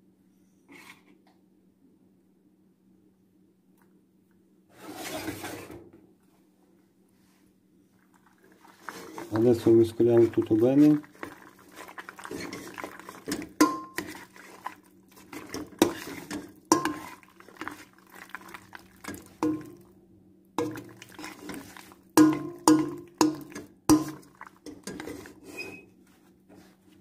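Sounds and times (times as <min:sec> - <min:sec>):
utensil scraping metal pot: 0:08.6 - 0:19.8, 0:20.6 - 0:25.8.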